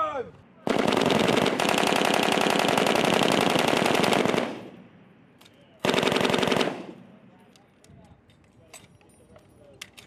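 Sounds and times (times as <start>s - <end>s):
machine gun bursts: 0.7s - 4.6s, 5.8s - 6.8s.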